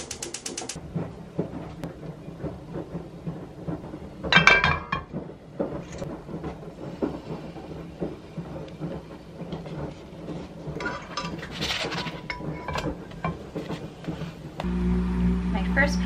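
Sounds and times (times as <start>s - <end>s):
clinks and taps on frying pan: 4.3s - 5.1s.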